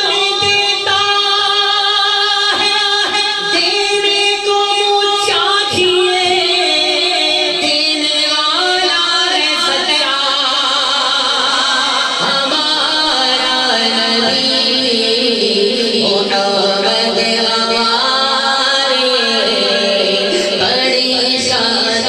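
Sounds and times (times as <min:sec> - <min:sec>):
man singing into a microphone: 0:00.0 - 0:22.0.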